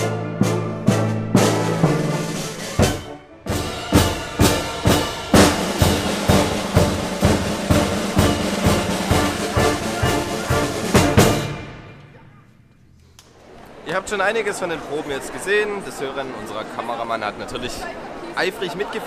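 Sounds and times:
orchestra playing loudly: 0.0s - 12.2s
bass drum strokes: 0.0s - 12.3s.

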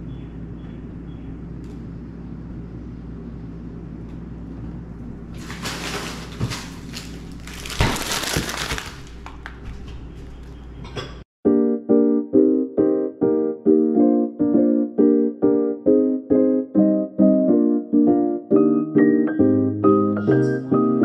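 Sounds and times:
low hum: 0.0s - 7.6s
plastic packaging crinkling: 5.3s - 9.9s
piano music: 11.4s - 21.0s.

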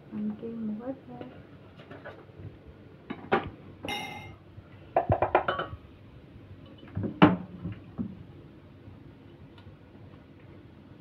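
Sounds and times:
metal spoon clinking on pot: 3.9s - 4.4s.

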